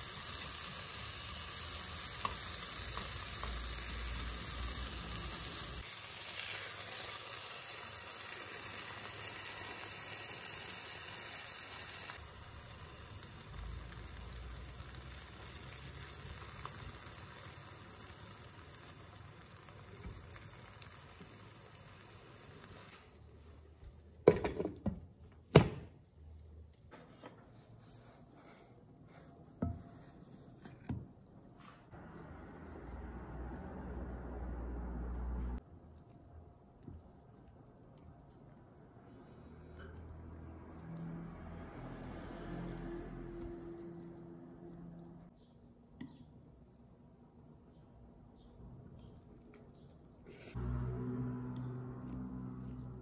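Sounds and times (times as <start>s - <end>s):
vegetables sizzling in wok: 0.0s - 23.1s.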